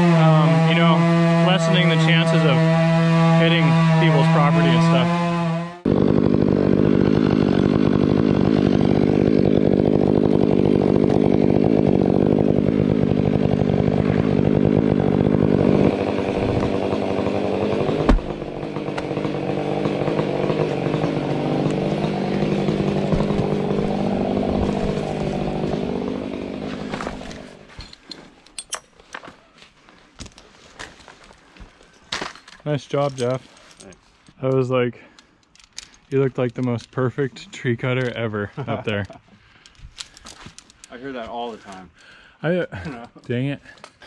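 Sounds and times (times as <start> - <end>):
chainsaw cutting wood: 0.0 - 27.8
heavy thud: 18.0 - 18.5.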